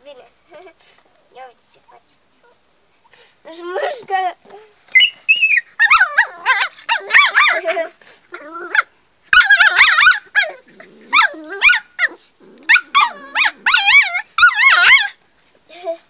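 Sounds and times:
puppy yelping and whining: 0:04.9 - 0:15.2
low growling: 0:10.4 - 0:13.7.

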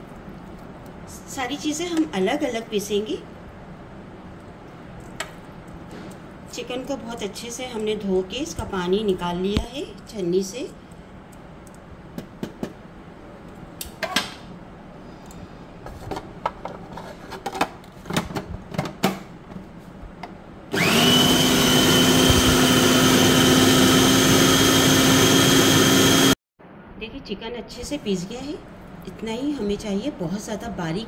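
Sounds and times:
food processor motor running: 0:20.7 - 0:26.4.

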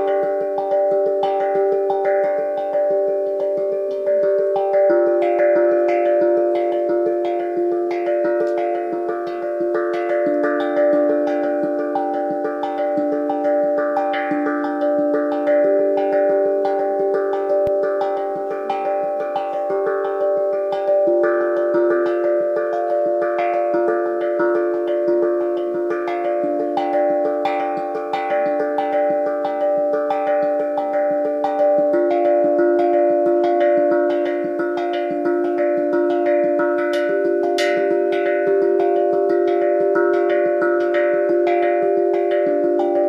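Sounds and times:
steel tongue drum melody: 0:00.0 - 0:43.0.

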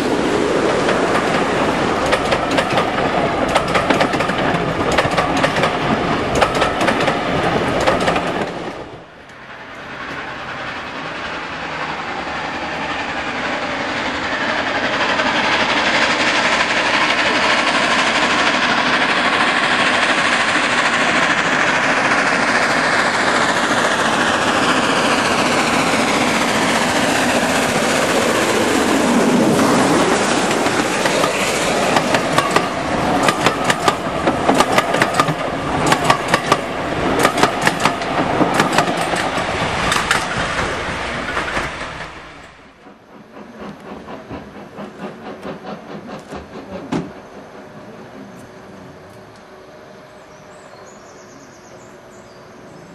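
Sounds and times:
distant train: 0:00.0 - 0:52.9
steam locomotive passing: 0:00.0 - 0:52.9
train wheels clickety-clack: 0:00.4 - 0:49.5.

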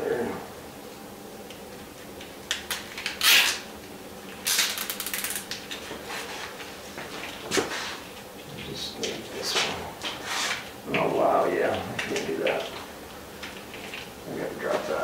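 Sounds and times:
cables clicking and rustling: 0:01.4 - 0:15.0
zip tie ratcheting: 0:03.2 - 0:03.6, 0:04.4 - 0:05.4.

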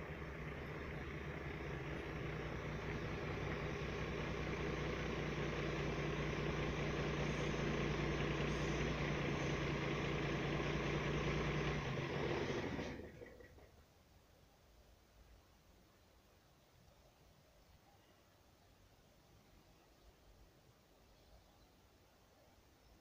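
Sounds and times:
engine idling: 0:00.0 - 0:13.8.

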